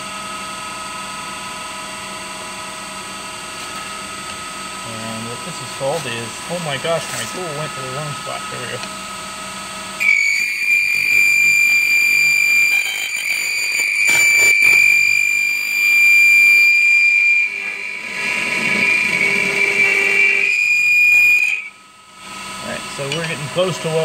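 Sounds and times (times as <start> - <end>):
lathe tool high-pitched squeal: 10.0 - 21.8.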